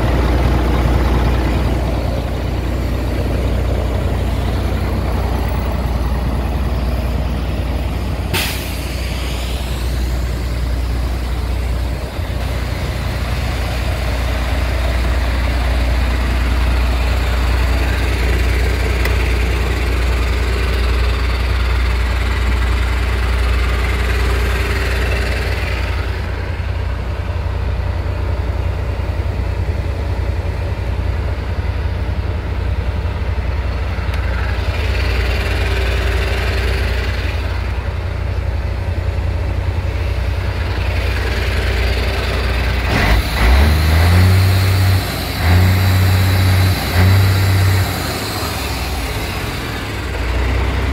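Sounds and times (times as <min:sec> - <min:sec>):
diesel engine idling: 0:00.0 - 0:50.9
compressed air hissing: 0:08.3 - 0:11.9.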